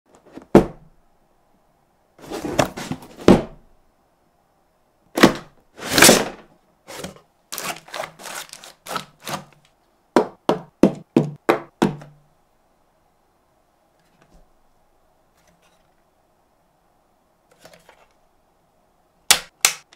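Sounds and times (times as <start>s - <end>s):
packaging rustling: 5.8s - 9.7s
knock on cardboard: 10.2s - 12.1s.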